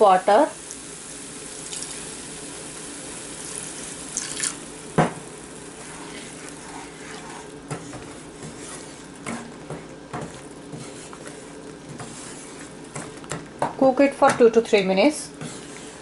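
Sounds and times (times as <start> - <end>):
water poured into a pan: 0.6 - 4.9
spatula stirring thick paste: 5.7 - 13.8, 14.7 - 16.0.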